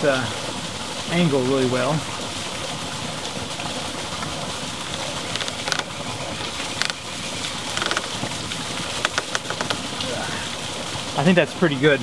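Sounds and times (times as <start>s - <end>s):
creek water flowing: 0.0s - 12.0s
plastic pipe knocks and clicks: 7.7s - 8.2s, 9.0s - 9.8s.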